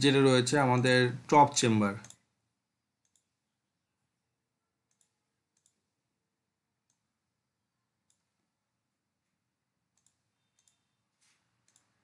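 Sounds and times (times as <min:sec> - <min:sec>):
computer mouse clicks: 0:02.0 - 0:02.3, 0:03.0 - 0:03.4, 0:04.9 - 0:05.8, 0:08.0 - 0:08.3, 0:09.9 - 0:11.0, 0:11.6 - 0:12.0.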